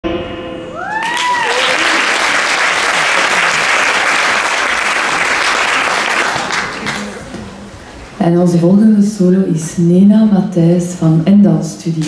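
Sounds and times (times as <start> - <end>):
audience applauding: 0.9 - 7.4.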